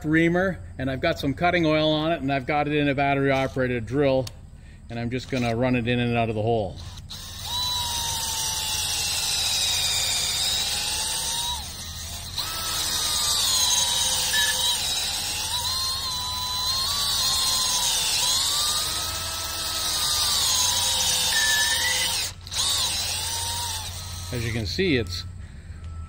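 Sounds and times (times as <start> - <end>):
drill motor whining: 5.2 - 5.6, 6.8 - 26.0.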